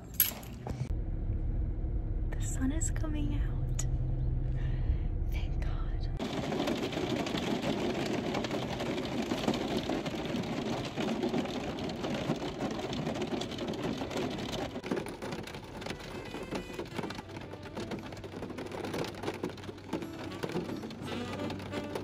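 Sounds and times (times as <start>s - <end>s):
heavy rain on car roof: 6.2s - 22.0s.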